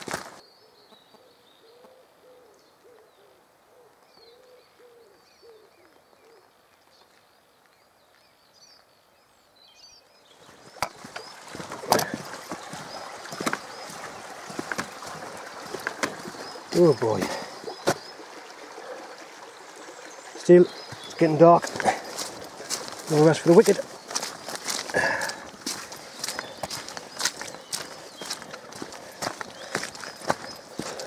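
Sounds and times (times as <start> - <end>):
footsteps on wooden bridge: 0.0 - 0.4, 10.4 - 18.1, 20.8 - 31.0.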